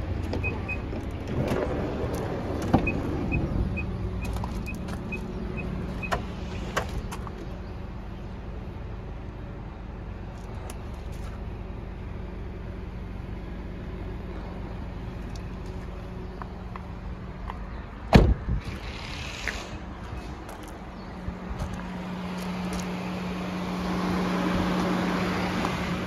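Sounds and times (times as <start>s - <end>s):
van engine idling hum: 0.0s - 26.0s
car door thumping shut: 18.1s - 18.4s.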